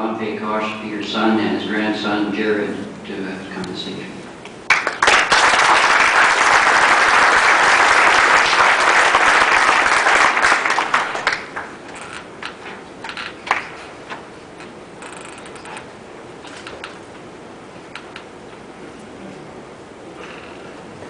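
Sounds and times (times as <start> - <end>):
audience clapping: 4.7 - 12.6, 13.4 - 13.8.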